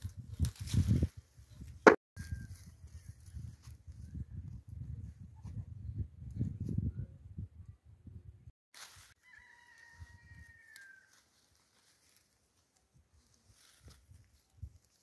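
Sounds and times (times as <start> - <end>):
distant rooster crow: 9.0 - 11.4.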